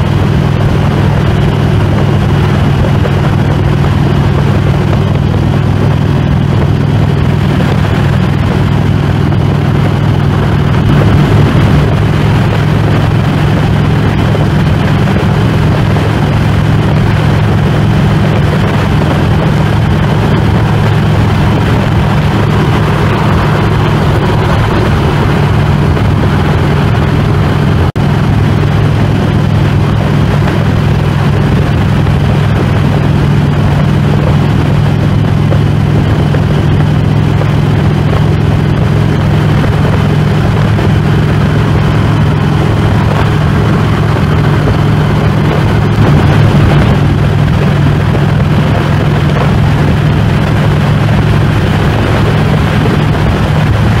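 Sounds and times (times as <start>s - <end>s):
motorcycle engine cruising: 0.0s - 54.0s
wind rush on microphone: 0.0s - 54.0s.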